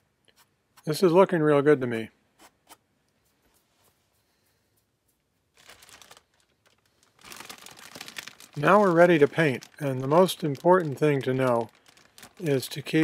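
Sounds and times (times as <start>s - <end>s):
plastic bag crinkling: 5.5s - 13.0s.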